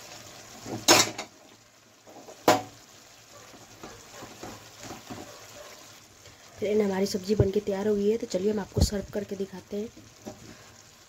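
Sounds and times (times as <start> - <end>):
spoon knocking on pan: 2.2 - 2.7, 3.5 - 5.4.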